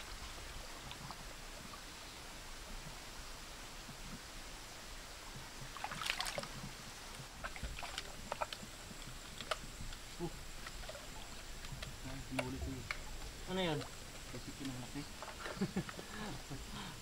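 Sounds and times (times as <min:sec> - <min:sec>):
creek water running: 0:00.0 - 0:17.0
splashing and rustling: 0:05.3 - 0:16.7
reed stalks clicking and snapping: 0:05.8 - 0:16.0.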